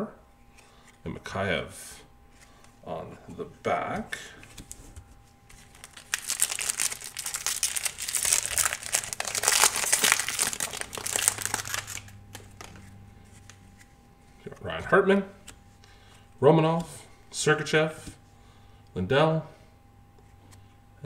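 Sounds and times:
foil wrapper crinkling: 0:05.5 - 0:12.8.

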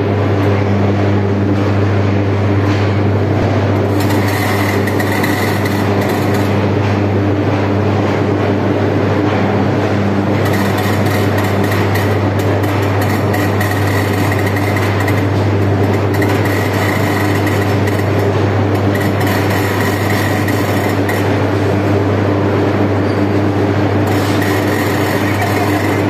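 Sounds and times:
constant low hum: 0:00.0 - 0:26.0
industrial din: 0:09.2 - 0:22.8, 0:23.8 - 0:26.0.

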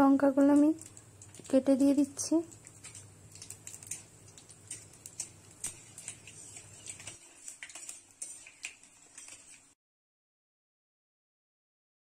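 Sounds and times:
seeds crackling in hot oil: 0:00.0 - 0:09.8
metal spatula stirring: 0:00.4 - 0:09.8.

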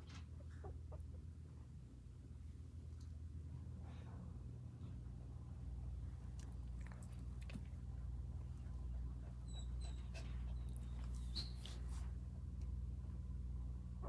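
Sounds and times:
low hum: 0:00.0 - 0:14.0
puppies squeaking and whimpering: 0:09.3 - 0:12.0.

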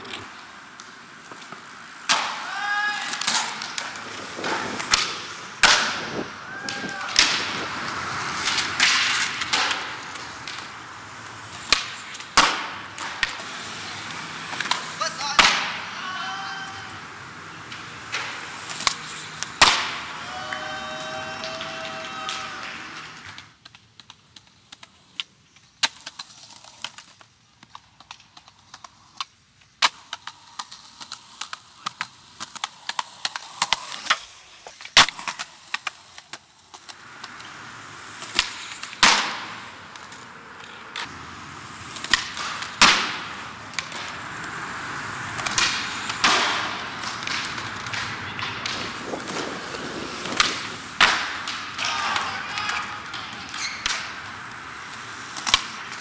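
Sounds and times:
skateboard wheels rolling on concrete: 0:00.0 - 0:56.0
skateboards clacking: 0:00.0 - 0:56.0.

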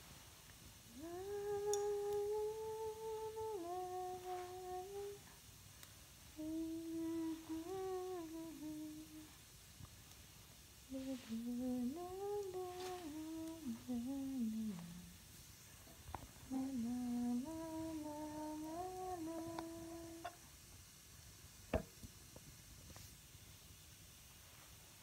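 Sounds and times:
woman humming: 0:00.9 - 0:05.3, 0:06.3 - 0:09.4, 0:10.9 - 0:15.2, 0:16.4 - 0:20.4.

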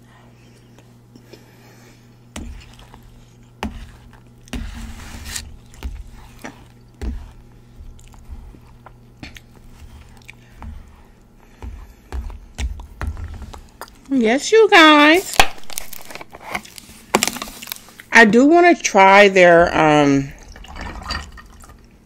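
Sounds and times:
spoon scraping paper plate: 0:02.4 - 0:11.7
chewing and mouth sounds: 0:07.8 - 0:11.4, 0:13.5 - 0:14.1.

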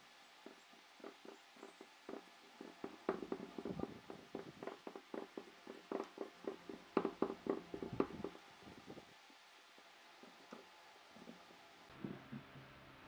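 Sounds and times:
wooden knocks: 0:00.4 - 0:09.0, 0:10.2 - 0:11.6
wood clicking and creaking on screw: 0:00.4 - 0:09.1, 0:10.2 - 0:11.6.

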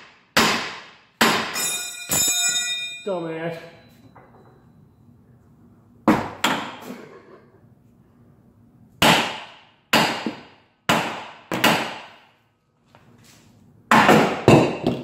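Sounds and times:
hammer striking steel: 0:00.0 - 0:03.1, 0:09.0 - 0:12.2.

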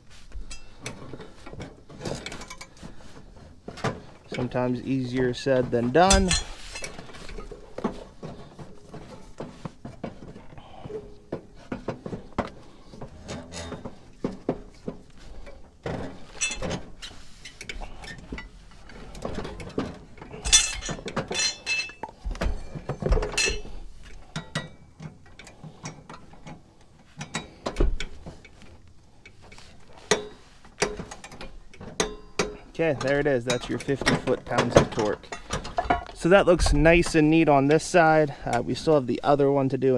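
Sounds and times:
wrench clinking on metal: 0:00.5 - 0:01.0, 0:06.0 - 0:07.5, 0:16.2 - 0:18.5, 0:20.3 - 0:22.1, 0:23.2 - 0:23.7, 0:30.1 - 0:34.2.

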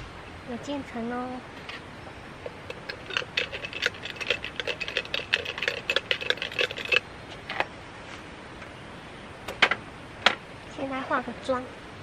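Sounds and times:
ice cubes rattling in plastic tumbler: 0:02.6 - 0:07.0.

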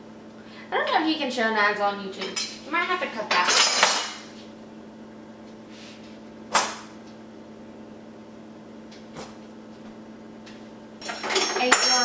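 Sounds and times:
knocks of kitchen things: 0:06.5 - 0:06.9.

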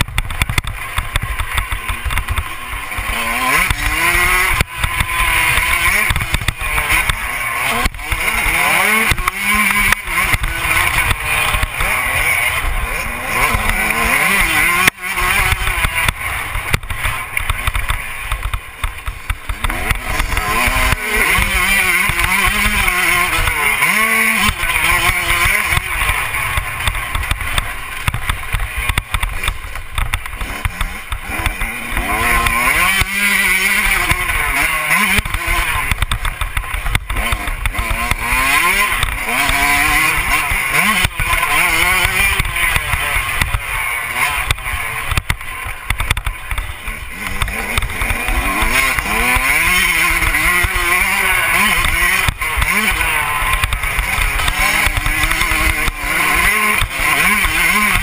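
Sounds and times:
motocross bike engine revving: 0:00.0 - 0:58.0.

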